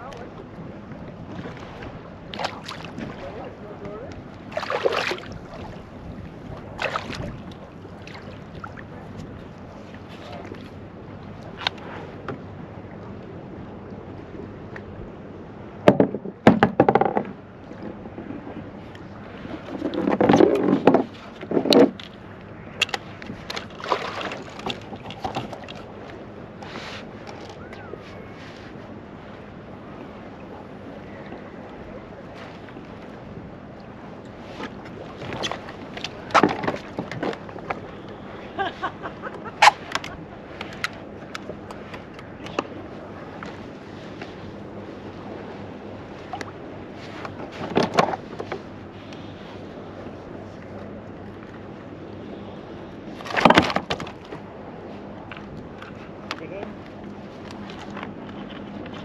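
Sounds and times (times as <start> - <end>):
water noise: 0.0 - 59.0
wind: 0.0 - 59.0
knocks against plastic kayak: 15.9 - 17.4.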